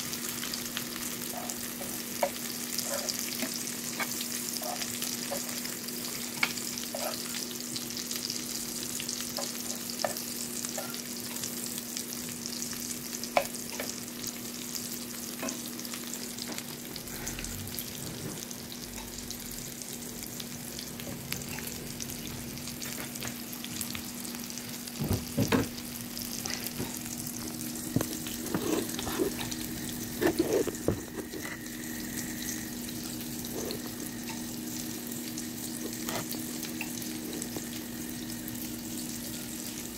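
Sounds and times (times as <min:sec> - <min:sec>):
food sizzling in oil: 0:00.0 - 0:39.9
metal spatula scraping pan: 0:28.4 - 0:29.6.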